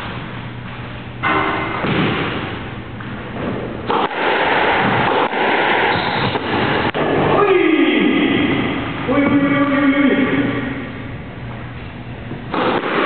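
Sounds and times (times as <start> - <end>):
squash ball hitting walls: 1.2 - 2.7, 3.4 - 7.4, 12.5 - 13.0.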